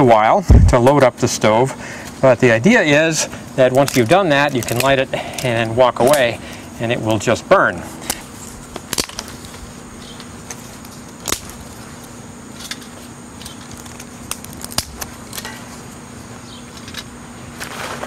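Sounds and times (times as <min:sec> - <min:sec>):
twigs knocking against wire mesh: 0:03.6 - 0:06.4, 0:08.0 - 0:15.7.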